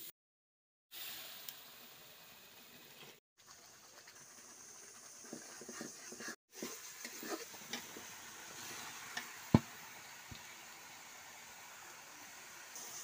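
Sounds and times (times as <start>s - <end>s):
food sizzling in oil: 0.9s - 13.0s
metal spatula scraping in pan: 5.2s - 8.9s.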